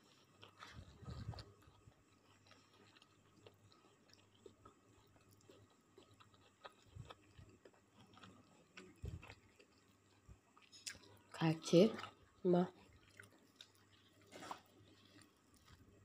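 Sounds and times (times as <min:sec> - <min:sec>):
chewing food: 0:00.0 - 0:16.0.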